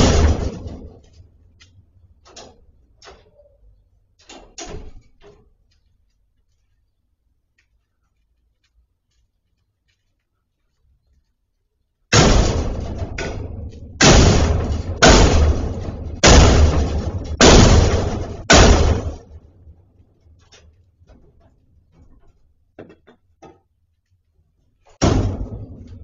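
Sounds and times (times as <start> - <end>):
gate slamming bangs: 0.0 - 1.3, 4.2 - 5.4, 12.1 - 19.5, 24.9 - 26.0.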